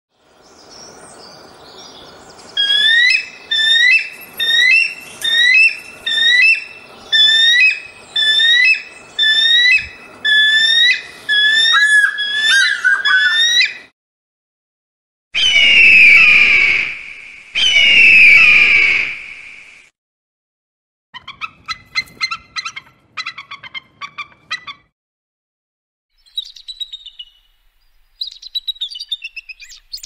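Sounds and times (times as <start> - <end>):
kite calling shrill whistles: 2.6 - 13.9, 15.4 - 19.6.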